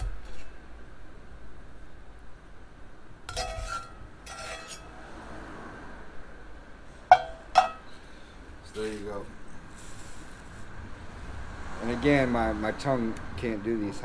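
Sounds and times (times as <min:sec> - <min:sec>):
metal spoon clinking on cast iron: 0:07.1 - 0:07.9.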